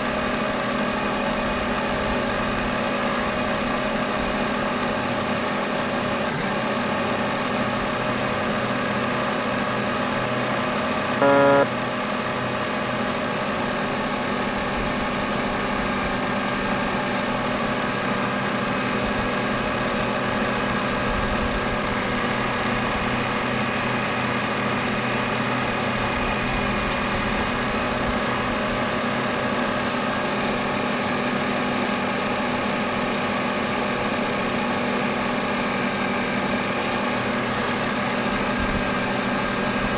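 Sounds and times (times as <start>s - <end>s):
model boat motor running: 0.0s - 39.9s
short beep: 11.2s - 11.7s.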